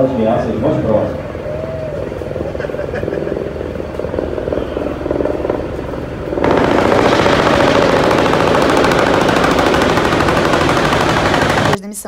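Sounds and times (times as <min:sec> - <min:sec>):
helicopter rotor thrumming: 0:00.5 - 0:12.0
rapid automatic gunfire: 0:06.3 - 0:12.0.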